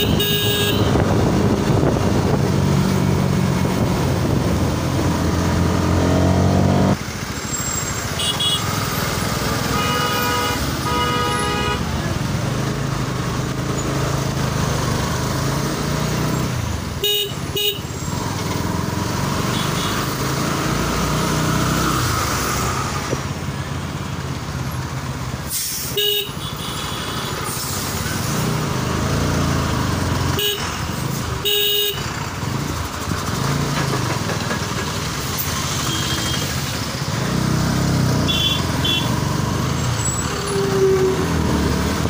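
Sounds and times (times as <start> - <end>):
vehicle horns honking: 0.0 - 1.1, 8.0 - 8.8, 9.6 - 11.9, 17.0 - 18.0, 19.5 - 20.1, 25.5 - 27.5, 30.3 - 30.8, 31.4 - 32.1, 35.7 - 36.6, 38.2 - 39.2
motorcycle engine and wind rumble: 0.0 - 5.8.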